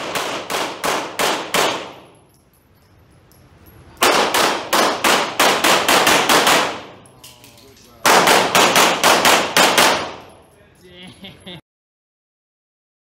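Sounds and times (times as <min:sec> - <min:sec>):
pistol shots echoing indoors: 0:00.0 - 0:02.4, 0:04.0 - 0:10.5.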